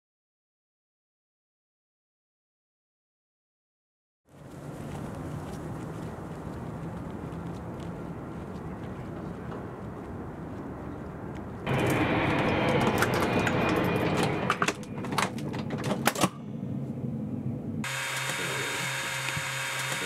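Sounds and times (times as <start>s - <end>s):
electrical hum: 4.4s - 20.0s.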